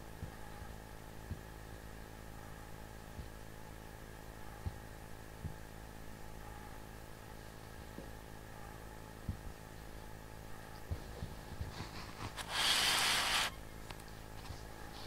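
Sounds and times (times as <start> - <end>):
low steady hum: 0.0 - 15.0
rustling scrape: 11.7 - 13.6.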